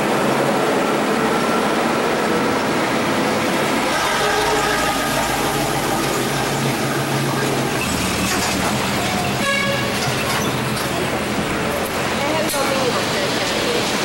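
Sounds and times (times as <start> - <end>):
street noise: 0.0 - 14.0
vehicle horn tooting: 4.0 - 5.5, 9.2 - 10.3.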